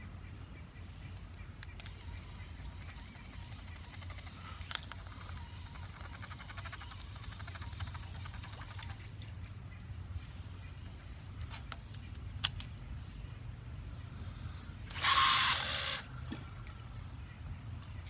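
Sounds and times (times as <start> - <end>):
reel clicks: 1.2 - 9.1
fishing reel gears ticking: 1.8 - 8.9
fishing line whirring off spool: 1.8 - 9.2, 14.9 - 16.2.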